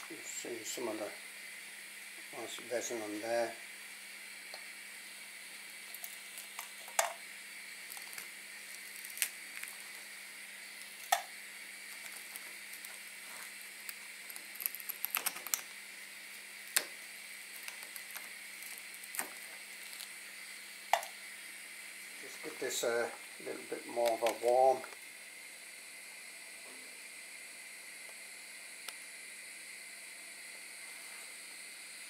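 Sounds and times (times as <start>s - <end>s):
melting flux hissing: 0.0s - 32.0s
sharp pops and crackles: 5.8s - 7.2s, 7.8s - 10.1s, 10.8s - 20.3s, 20.9s - 21.2s, 23.9s - 25.1s.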